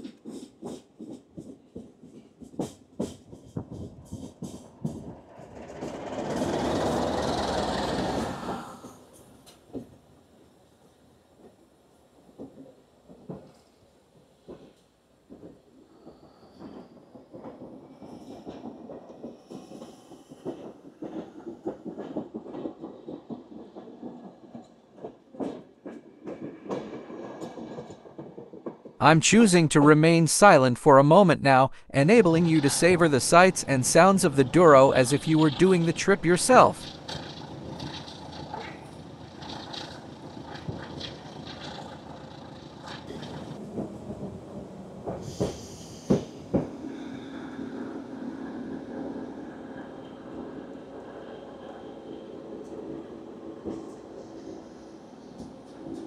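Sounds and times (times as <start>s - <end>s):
train wheels clicking over joints: 0.0s - 9.8s, 36.7s - 43.6s
passing locomotive rush and rumble: 0.0s - 29.0s, 36.5s - 56.0s.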